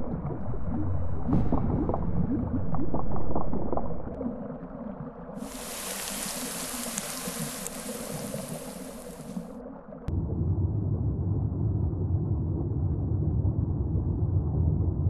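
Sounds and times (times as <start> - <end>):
underwater bubbling and gurgling: 0.0 - 10.1
bright hiss: 5.4 - 9.5.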